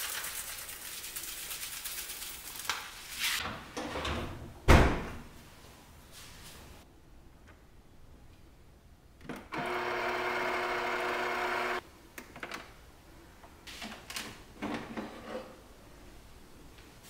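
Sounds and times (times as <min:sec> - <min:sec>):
espresso machine buzzing: 0:09.6 - 0:11.8.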